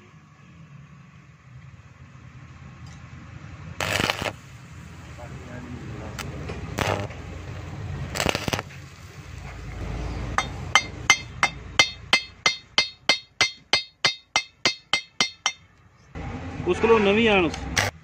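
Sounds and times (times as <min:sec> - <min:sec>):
steel bar striking metal: 0:10.4 - 0:15.6.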